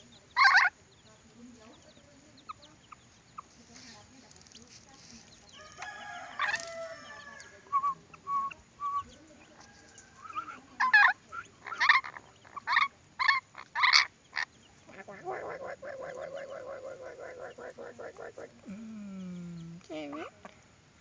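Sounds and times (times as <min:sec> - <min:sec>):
lorikeet chatter: 0:00.0 - 0:20.8
whistled bird notes: 0:05.6 - 0:10.6.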